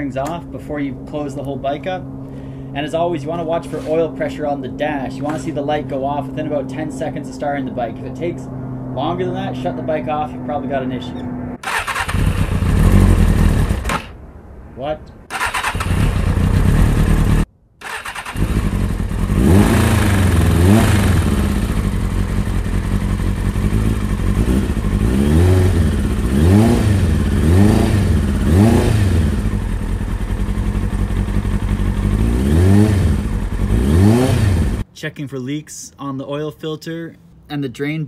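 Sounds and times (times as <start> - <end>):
motorcycle engine idling: 11.8 - 13.9, 15.9 - 17.4, 18.0 - 33.8
engine throttle blips: 15.3 - 34.9.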